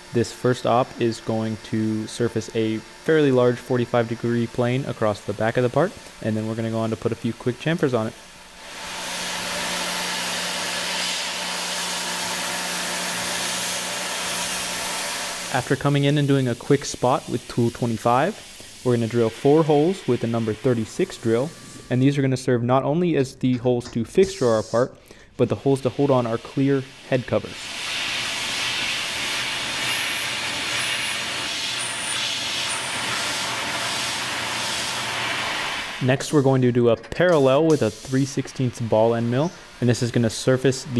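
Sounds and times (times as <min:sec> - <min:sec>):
coolant mist hissing: 0:00.0 - 0:22.0, 0:24.3 - 0:36.4, 0:37.3 - 0:40.9
milling machine hum: 0:00.0 - 0:22.4, 0:25.4 - 0:36.0, 0:37.9 - 0:40.9
drill squealing: 0:19.1 - 0:22.3.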